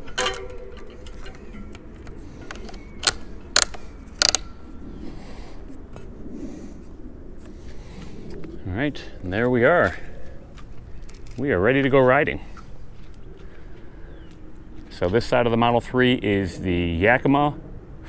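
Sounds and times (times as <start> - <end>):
ratchet strap buckle clicking: 2.4 - 4.5.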